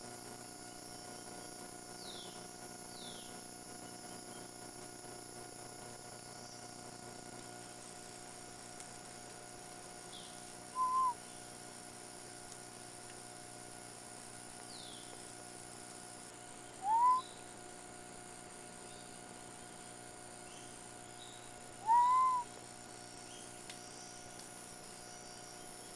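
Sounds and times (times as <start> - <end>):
faint electronic hum: 0.0 - 25.9
short animal calls: 10.8 - 11.2, 16.8 - 17.3, 21.8 - 22.5.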